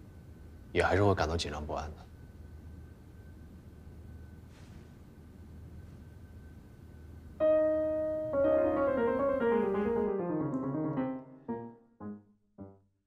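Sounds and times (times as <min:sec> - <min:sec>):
faint room hum: 0:00.0 - 0:11.7
grand piano playing: 0:07.4 - 0:12.8.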